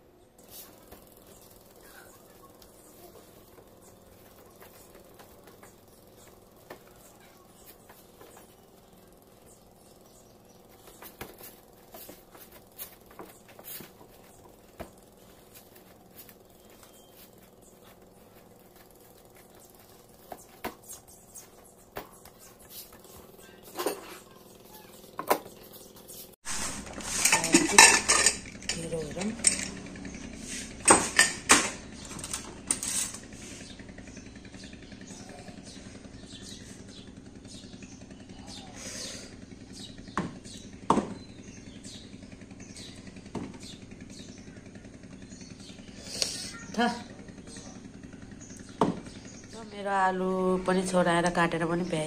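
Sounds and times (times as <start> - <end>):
pots and plates clattering: 26.8 - 28.8, 30.8 - 33.2
utensils tapping and clicking: 26.9 - 29.8.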